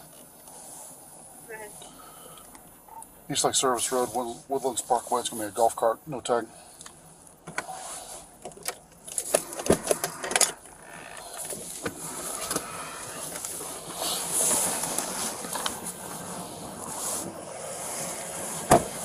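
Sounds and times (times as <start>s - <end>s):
steady hiss: 0.0s - 19.0s
rustling: 7.5s - 19.0s
car door unlatching and opening: 8.5s - 13.5s, 18.5s - 19.0s.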